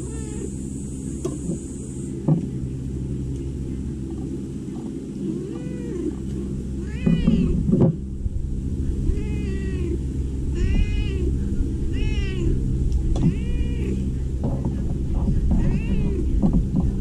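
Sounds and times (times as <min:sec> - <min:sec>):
cat meowing: 0:00.1 - 0:00.5, 0:05.5 - 0:06.2, 0:06.8 - 0:07.6, 0:09.1 - 0:10.0, 0:10.6 - 0:11.3, 0:11.9 - 0:12.6, 0:13.2 - 0:14.0, 0:15.5 - 0:16.3.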